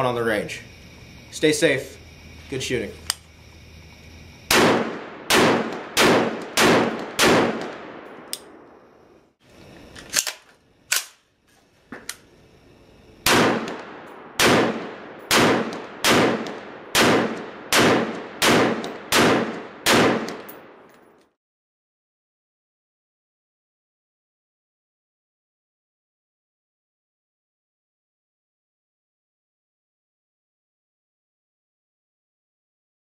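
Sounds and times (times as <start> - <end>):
rifle gunshots with echo: 4.5 - 8.7, 13.2 - 20.8.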